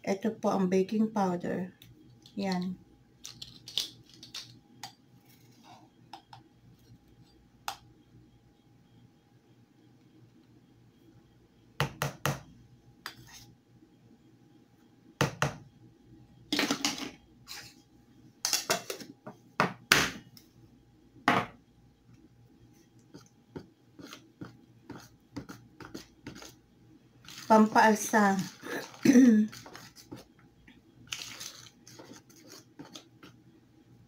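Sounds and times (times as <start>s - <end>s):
spoon stirring batter: 13.0s - 13.5s, 22.8s - 26.7s, 27.3s - 30.4s, 31.3s - 33.5s.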